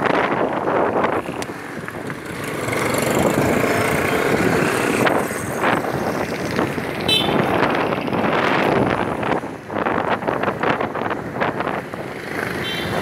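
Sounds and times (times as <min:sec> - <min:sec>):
traffic: 0:00.0 - 0:13.0
wind rushing over microphone: 0:00.0 - 0:13.0.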